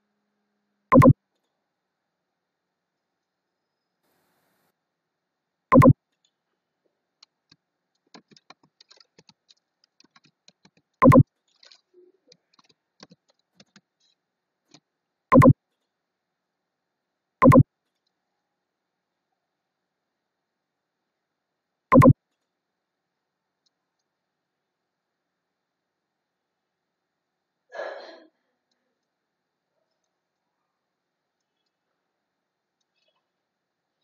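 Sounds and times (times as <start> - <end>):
computer alert beeps: 0.9 - 1.2, 5.7 - 6.0, 11.0 - 11.2, 15.3 - 15.6, 17.4 - 17.6, 21.9 - 22.2
keyboard typing and clicks: 0.9 - 1.2, 5.7 - 6.0, 8.0 - 13.9, 15.3 - 15.6, 17.4 - 17.6, 21.9 - 22.2.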